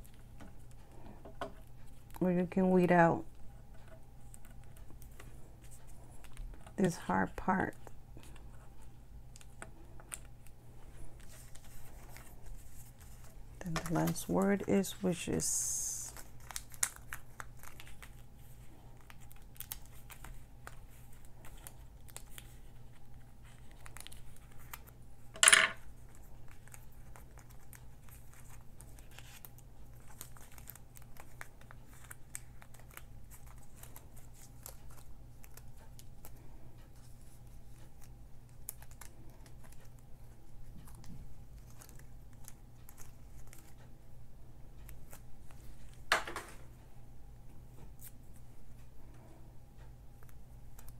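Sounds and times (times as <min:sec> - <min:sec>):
paper rustle: 0:07.8 - 0:25.0, 0:25.9 - 0:43.9
paper crinkling and tearing: 0:08.2 - 0:25.0, 0:26.0 - 0:36.4, 0:37.0 - 0:40.0, 0:40.6 - 0:43.9.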